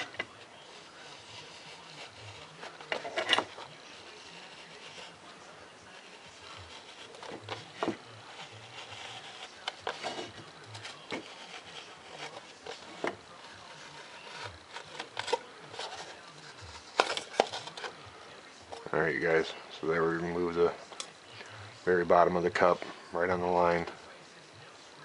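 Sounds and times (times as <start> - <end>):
knife scraping through foam cup: 0.0 - 5.2, 6.0 - 18.0.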